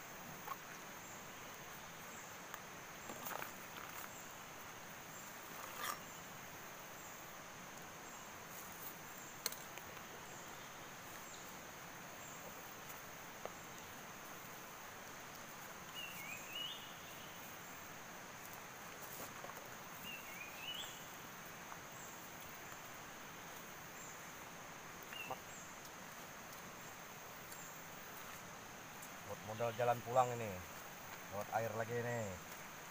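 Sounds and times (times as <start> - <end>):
bird chirp: 15.9 - 17.7, 19.2 - 21.2, 25.0 - 28.3
bird warbling calls: 25.0 - 25.6.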